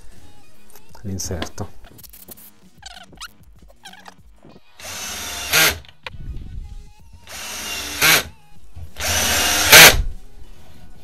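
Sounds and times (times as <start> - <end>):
drill driving screw into wood: 4.8 - 5.8, 7.3 - 8.3, 9.0 - 10.1.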